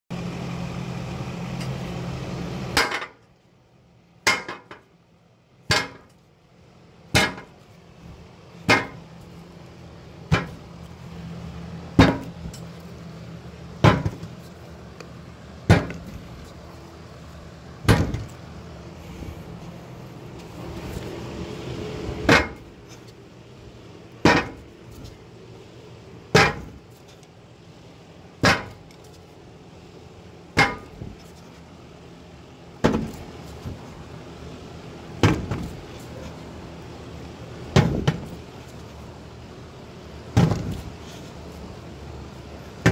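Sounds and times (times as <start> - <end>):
steady hum: 0.1 - 42.9
sharp hard knocks: 5.7 - 6.1, 7.1 - 7.5, 8.6 - 9.0, 10.3 - 10.6, 12.0 - 12.4, 13.8 - 14.4, 15.7 - 16.2, 17.8 - 18.3, 22.3 - 22.7, 24.2 - 24.6, 26.3 - 26.8, 28.4 - 28.9, 30.6 - 31.2, 32.8 - 33.3, 35.2 - 35.8, 37.7 - 38.4, 40.3 - 40.9.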